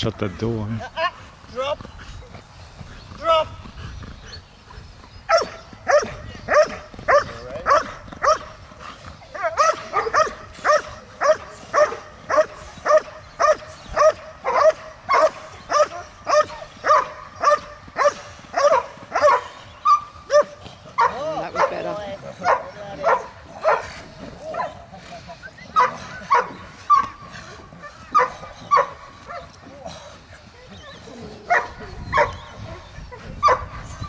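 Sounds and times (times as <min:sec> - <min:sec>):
dog barking: 0:05.3 - 0:08.5, 0:09.4 - 0:23.9, 0:25.8 - 0:27.2, 0:28.1 - 0:29.5, 0:31.5 - 0:32.5, 0:33.4 - 0:33.7.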